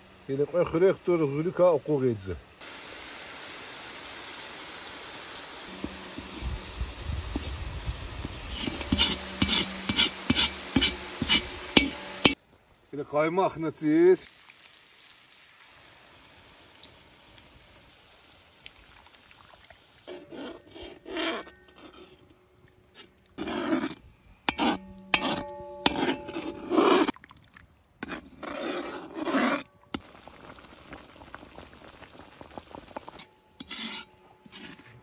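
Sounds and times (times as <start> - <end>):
metal spoon scraping metal pot: 5.7 - 6.7, 8.5 - 12.4, 20.1 - 22.4, 23.0 - 27.1, 28.0 - 30.0, 33.1 - 35.0
pot ringing: 8.6 - 12.4, 24.5 - 27.1.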